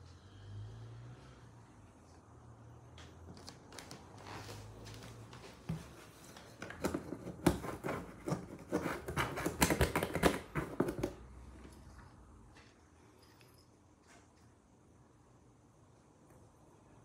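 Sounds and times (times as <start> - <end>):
fingers scratching cardboard box: 6.6 - 11.2.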